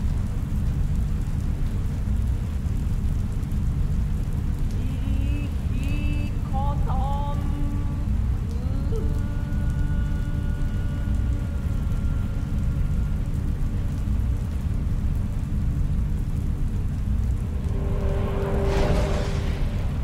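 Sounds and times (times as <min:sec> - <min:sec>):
deep rumble: 0:00.0 - 0:20.0
rushing swell: 0:17.4 - 0:20.0.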